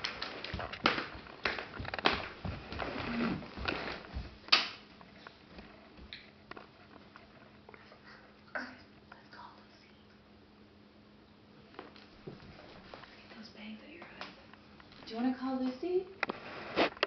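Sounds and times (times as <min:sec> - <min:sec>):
toddler footsteps on hardwood floor: 0:00.0 - 0:07.4, 0:11.8 - 0:13.1.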